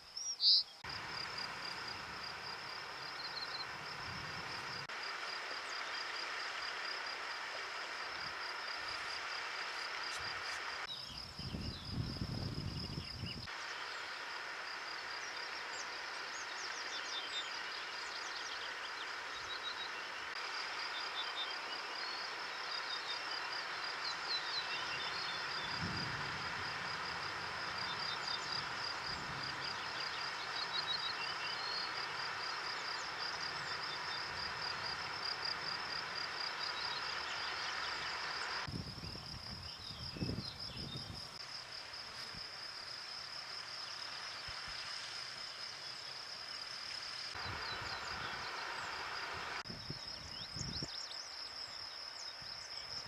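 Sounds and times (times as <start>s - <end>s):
insects trilling: 0.0s - 53.0s.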